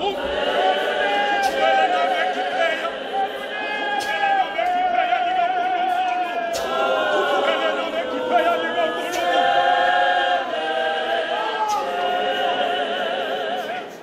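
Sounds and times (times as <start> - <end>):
congregation singing a hymn: 0.0 - 14.0.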